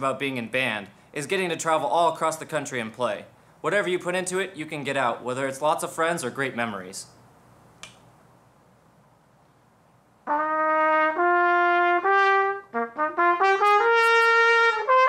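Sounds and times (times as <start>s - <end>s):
solo trumpet: 10.2s - 15.0s.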